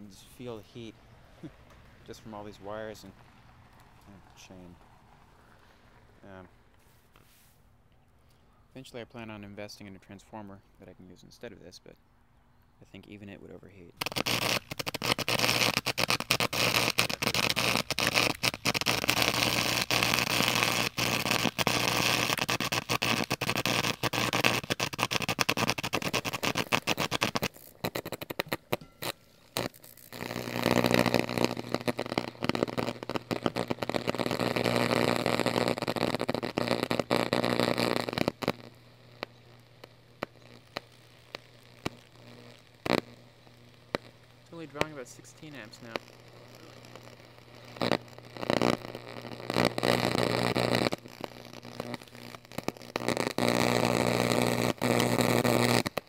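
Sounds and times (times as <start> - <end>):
electric arc crackling: 14.0 - 56.0.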